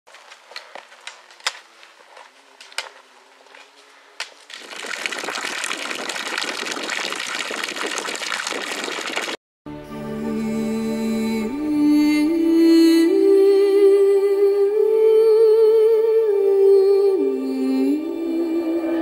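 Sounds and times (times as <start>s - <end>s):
trekking poles tapping on stones: 0.1s - 4.6s.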